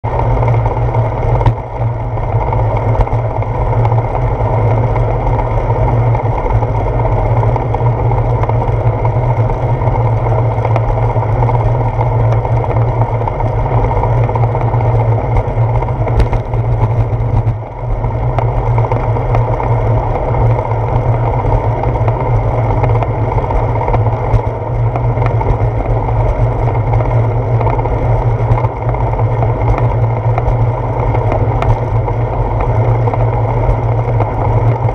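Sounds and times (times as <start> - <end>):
bicycle road rumble: 0.0 - 34.9
wind noise: 0.0 - 34.9.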